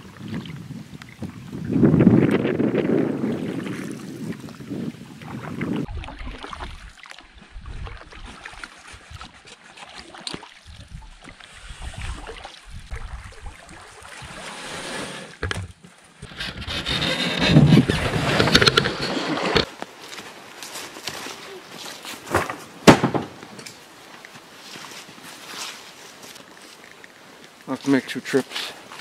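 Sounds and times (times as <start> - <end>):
wind rumbling on microphone: 0.0 - 9.4, 10.6 - 14.8, 16.2 - 19.7
water lapping at hull: 2.8 - 19.7, 23.9 - 29.0
paddle strokes swishing through water: 3.2 - 22.3, 24.0 - 29.0.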